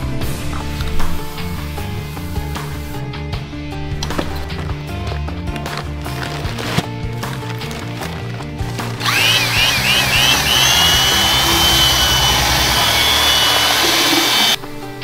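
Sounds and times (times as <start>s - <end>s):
background music: 0.0s - 15.0s
power tool whining: 8.7s - 14.6s.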